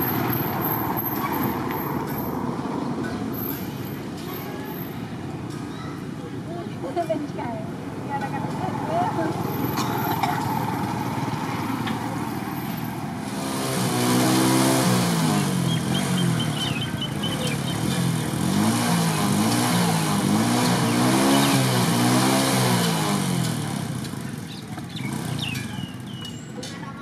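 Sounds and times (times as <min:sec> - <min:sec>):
vehicle engine revving: 0:09.3 - 0:26.2.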